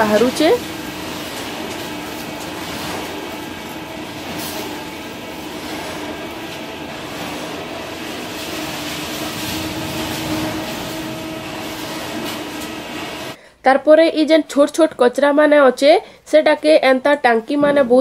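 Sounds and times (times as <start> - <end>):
shredder motor grinding: 0.0 - 13.4.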